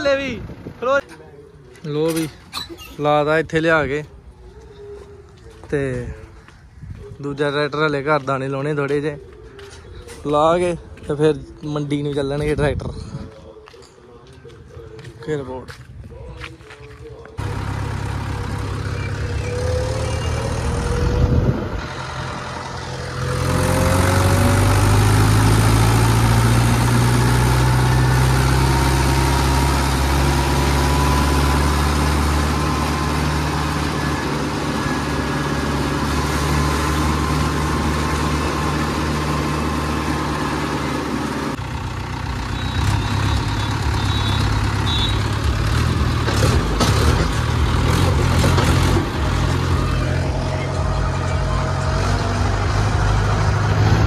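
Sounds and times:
tractor engine running: 17.1s - 54.0s.

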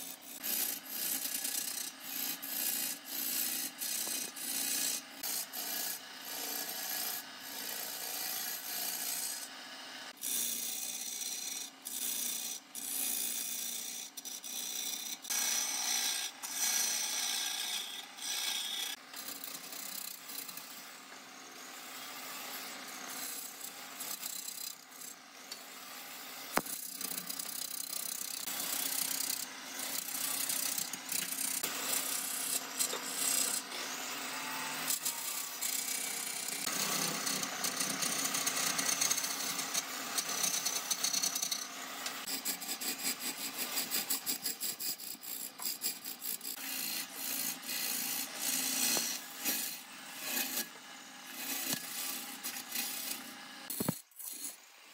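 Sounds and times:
tool rasping against wood: 26.6s - 50.7s.

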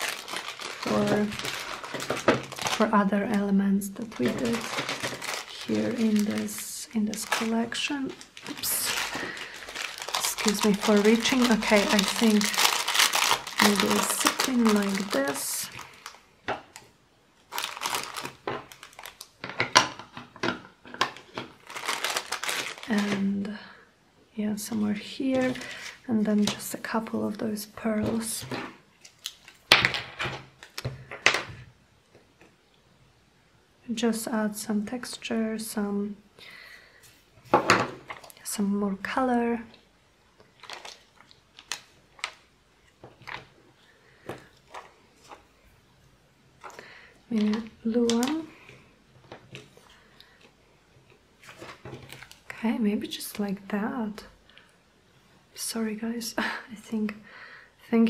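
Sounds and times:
paper and plastic rustling: 0.0s - 16.8s, 17.5s - 23.5s, 24.6s - 27.2s, 27.9s - 31.6s, 37.2s - 38.4s, 40.5s - 42.4s, 43.0s - 45.6s, 46.6s - 50.6s, 51.4s - 52.6s.

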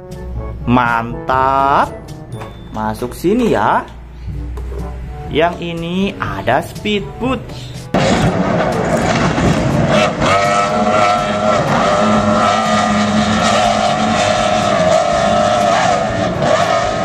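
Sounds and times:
outboard engines running flat out: 8.0s - 17.0s
rushing water noise: 8.0s - 17.0s.

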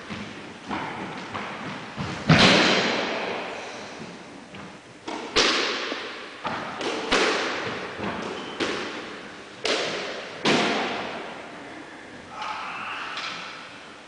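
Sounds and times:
squash ball hits with echo: 2.2s - 3.3s, 5.0s - 11.2s.

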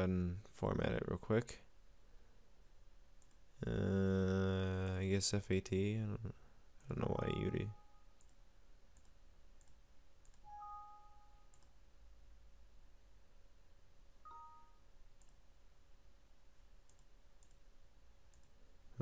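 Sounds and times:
computer mouse clicks: 3.2s - 3.4s, 8.2s - 8.4s, 9.0s - 10.5s, 11.5s - 11.8s, 15.2s - 15.4s, 16.8s - 17.7s, 18.3s - 18.6s
two-note system chime: 10.5s - 11.4s, 14.3s - 14.8s.

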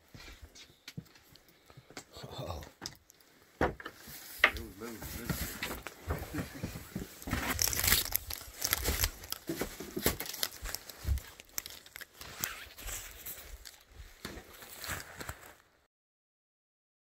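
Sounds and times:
clicks and knocks of objects moved: 2.8s - 15.0s
plastic bags rustling: 4.0s - 15.8s.

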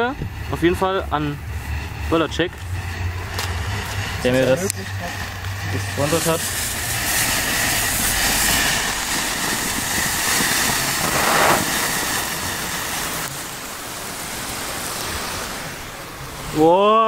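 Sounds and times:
flare burning with rushing hiss: 0.0s - 17.0s.

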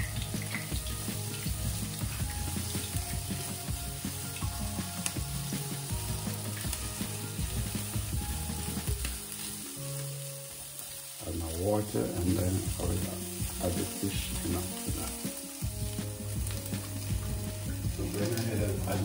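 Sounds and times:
spatula scraping and tapping pan: 0.0s - 3.4s
vegetables sizzling in oil: 0.0s - 19.0s.

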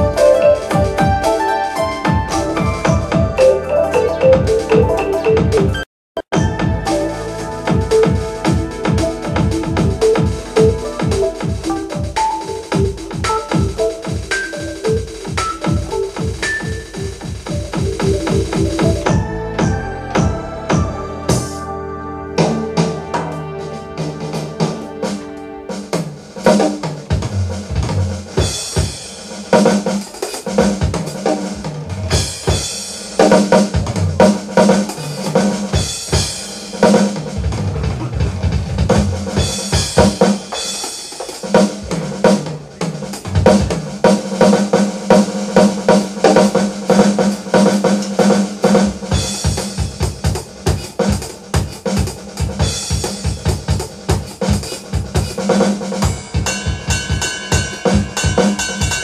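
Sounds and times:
electronic drum kit: 0.0s - 21.7s, 22.4s - 59.0s
cymbal crashes: 6.3s - 14.3s, 39.4s - 59.0s.

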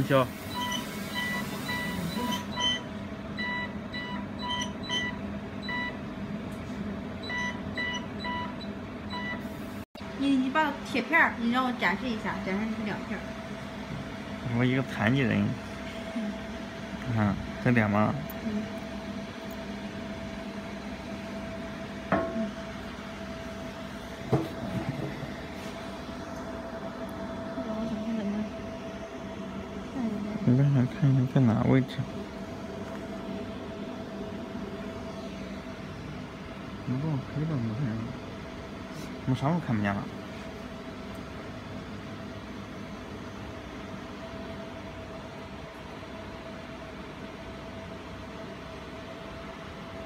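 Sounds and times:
steady low hum: 0.0s - 50.0s
short electronic beeps: 0.5s - 6.0s.

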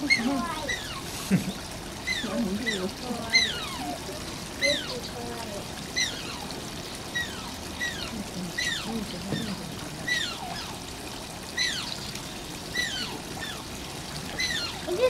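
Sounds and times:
otter squeaky cries: 12.7s - 13.7s, 14.4s - 15.0s.

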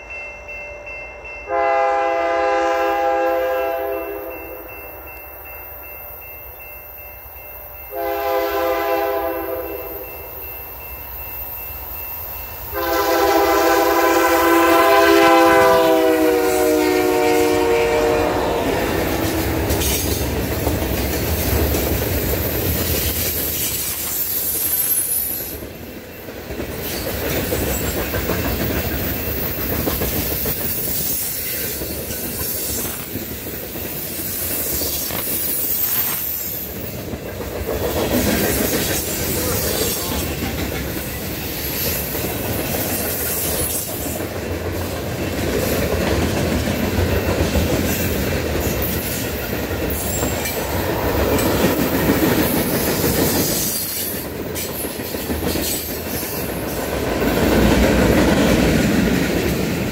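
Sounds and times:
locomotive air horn: 1.5s - 4.4s, 7.9s - 10.0s, 12.7s - 19.6s.

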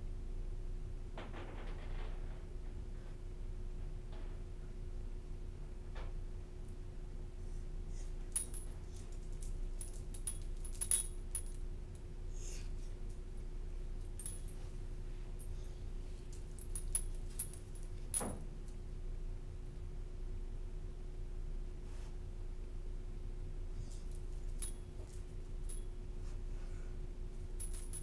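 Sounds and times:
steady hum: 6.4s - 28.0s
dog collar tags jingling: 8.4s - 11.7s, 14.0s - 14.6s, 16.3s - 18.4s, 24.1s - 25.9s, 27.5s - 28.0s.

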